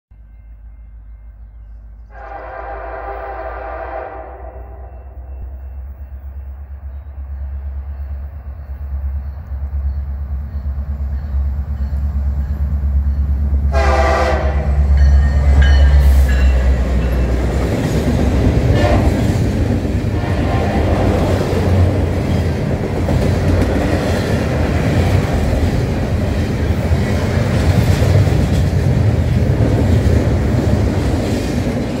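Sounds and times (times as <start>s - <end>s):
diesel locomotive engine rumble: 0.2s - 32.0s
train horn blast: 2.1s - 5.6s, 13.7s - 16.5s, 18.6s - 19.4s, 20.1s - 21.4s
train wheels clickety-clack: 9.4s - 32.0s.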